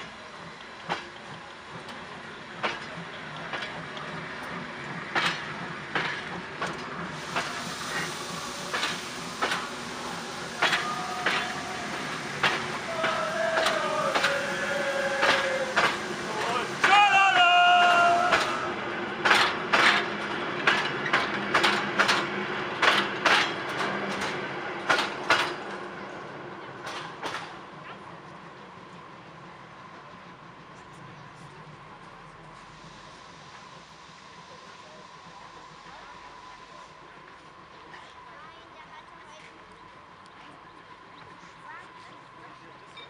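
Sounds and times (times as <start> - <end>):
train wheels clacking over rail joint: 0.0 - 25.9, 26.8 - 28.4
rumble of rolling coaches: 0.0 - 43.0
steam locomotive chuffing: 0.0 - 43.0
coaches rolling: 1.4 - 22.3.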